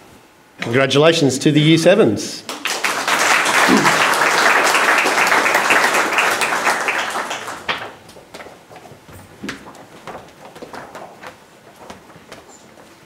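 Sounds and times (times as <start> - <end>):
audience applauding: 2.5 - 8.1.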